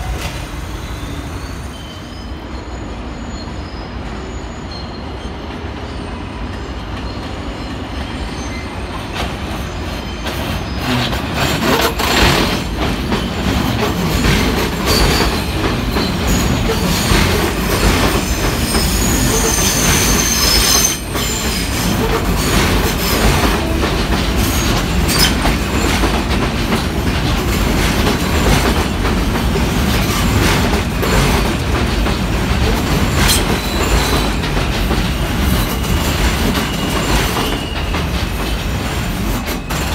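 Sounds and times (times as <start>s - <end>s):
high wheel squeal: 0.0s - 26.1s, 29.6s - 39.9s
subway train passing: 0.0s - 39.9s
wheels clacking over rail joints: 9.1s - 39.9s.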